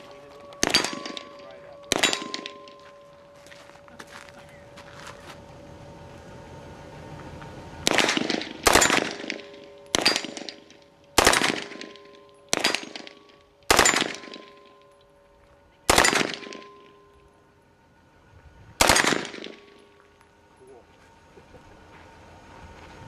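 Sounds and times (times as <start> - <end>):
submachine gun bursts: 7.9 - 10.6, 11.2 - 14.6, 15.9 - 16.7.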